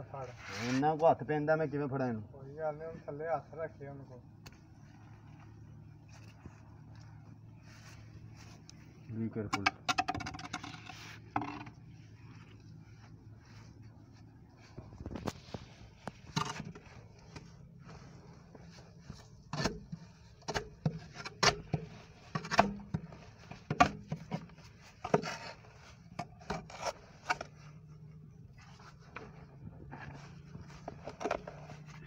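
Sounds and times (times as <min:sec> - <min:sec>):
faint low hum: 0:00.0 - 0:32.0
leaves rustling: 0:04.2 - 0:09.1, 0:10.9 - 0:19.3
gloved hands scraping roots and mud: 0:10.5 - 0:32.0.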